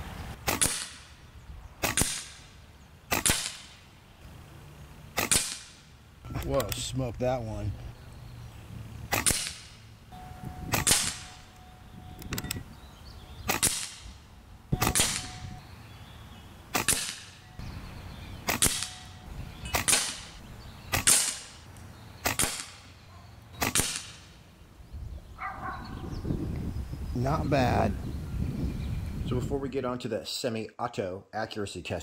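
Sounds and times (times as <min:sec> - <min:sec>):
air rifle shots: 0:00.4 - 0:01.2, 0:01.8 - 0:02.5, 0:03.1 - 0:03.8, 0:05.1 - 0:05.9, 0:09.1 - 0:09.8, 0:10.7 - 0:11.5, 0:13.4 - 0:15.6, 0:16.7 - 0:17.4, 0:18.4 - 0:21.6, 0:22.2 - 0:22.9, 0:23.6 - 0:24.3.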